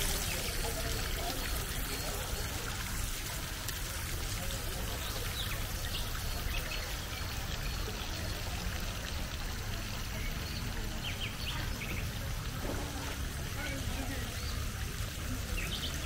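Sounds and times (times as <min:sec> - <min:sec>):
water pouring into pond: 0:00.0 - 0:16.0.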